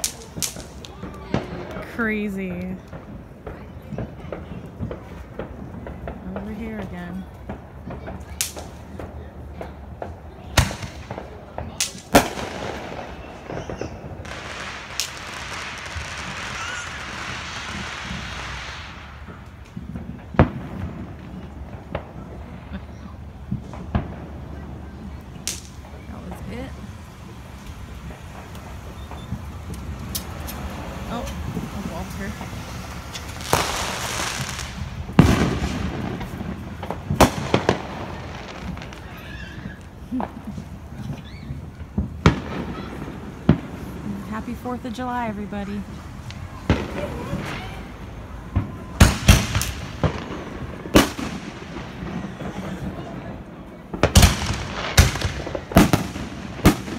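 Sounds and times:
fireworks bangs: 0:00.0 - 0:56.9
firework hissing burst: 0:10.6 - 0:19.5, 0:26.4 - 0:41.6.

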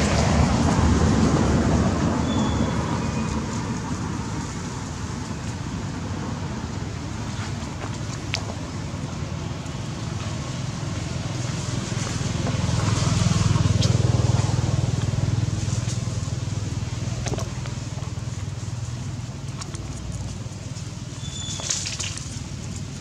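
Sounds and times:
vehicle engine passing: 0:00.0 - 0:04.6, 0:10.3 - 0:20.3.

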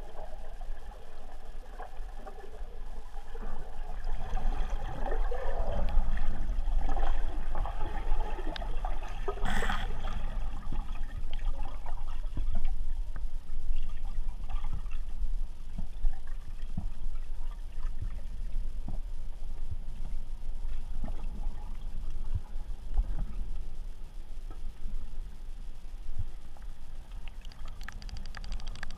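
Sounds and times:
underwater low rumble: 0:00.0 - 0:28.9
small underwater clicks: 0:05.8 - 0:06.0, 0:08.5 - 0:08.8, 0:27.0 - 0:28.9.

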